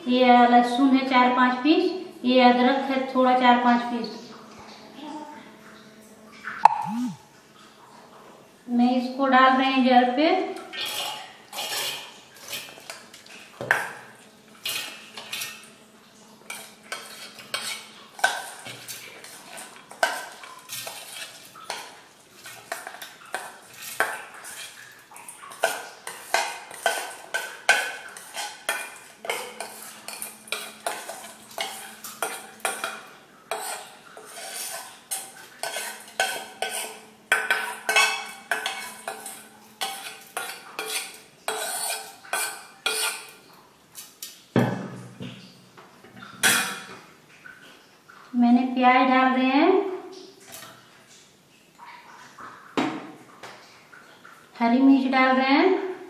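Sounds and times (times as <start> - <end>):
steel bowl scraping a jar: 10.8 - 12.9, 16.5 - 21.8, 28.2 - 32.9, 33.5 - 34.9, 35.6 - 43.3.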